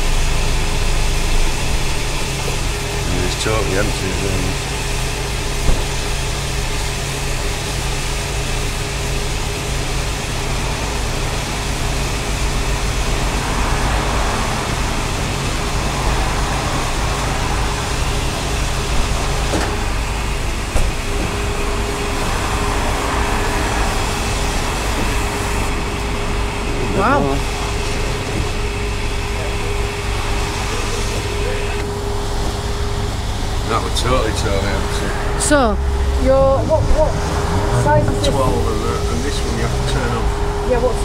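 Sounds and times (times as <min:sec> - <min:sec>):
gas pump humming and hissing: 0:00.0 - 0:41.0.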